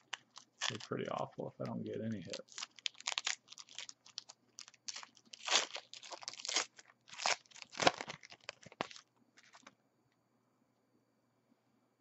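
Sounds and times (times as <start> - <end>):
foil wrapper tearing and crinkling: 0.0 - 1.0, 2.1 - 9.7.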